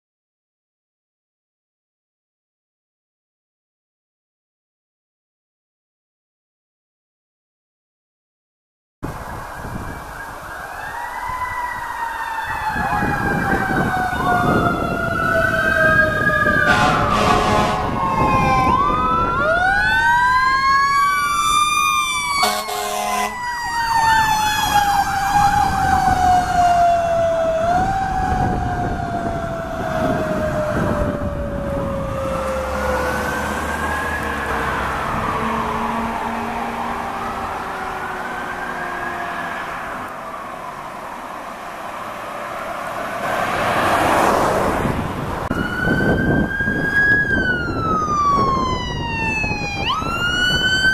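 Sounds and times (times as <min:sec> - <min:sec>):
fire engine siren: 0:09.0 - 0:50.9
fire engine horn blasts: 0:16.4 - 0:18.3, 0:22.4 - 0:23.5.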